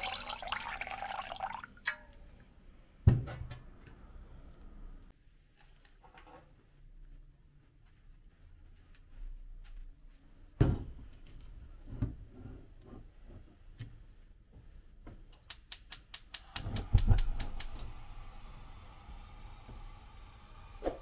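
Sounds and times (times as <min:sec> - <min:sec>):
spark igniter clicking: 0:15.4 - 0:18.1
gas flame hiss: 0:15.6 - 0:21.0.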